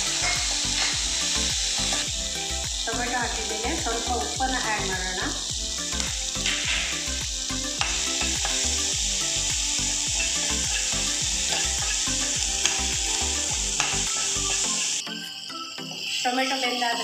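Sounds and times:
onion sizzling in hot oil: 0:00.0 - 0:17.0
spatula scraping a pan: 0:10.0 - 0:12.8.

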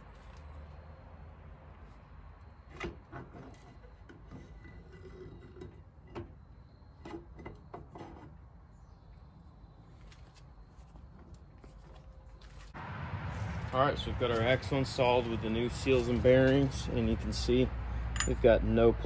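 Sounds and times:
metal shaft scraping: 0:03.3 - 0:06.5
metal knocks and clinks: 0:18.1 - 0:18.5.

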